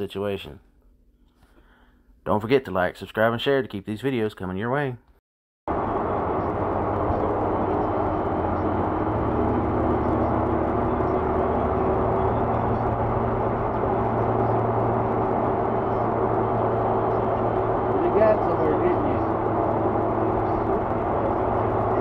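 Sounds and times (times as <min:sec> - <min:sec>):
low steady hum: 0:05.7 - 0:22.0
tyre and wind road noise: 0:05.7 - 0:22.0.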